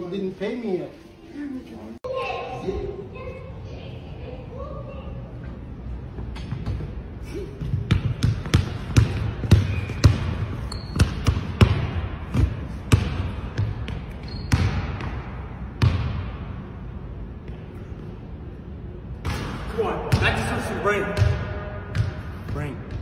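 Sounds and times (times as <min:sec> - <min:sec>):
basketball bouncing on hardwood floor: 0:07.7 - 0:16.2.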